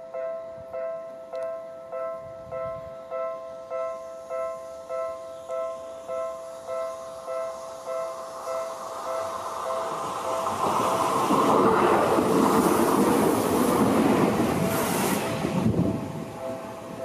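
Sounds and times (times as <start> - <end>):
level-crossing bell ringing: 0.0 - 11.0, 16.0 - 17.0
train wheels on rails: 3.8 - 17.0.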